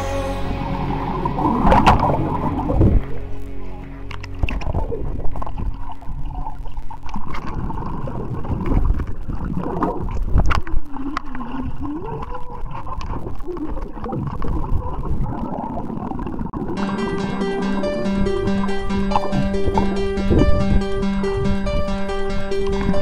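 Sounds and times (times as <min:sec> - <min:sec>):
muffled wavering tone: 0:00.0 - 0:07.0, 0:16.7 - 0:22.1
churning water underwater: 0:00.0 - 0:23.0.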